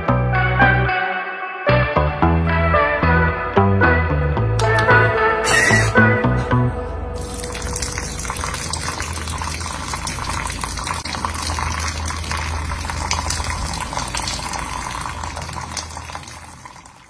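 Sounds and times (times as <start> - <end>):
steady low hum: 4.4 - 16.6.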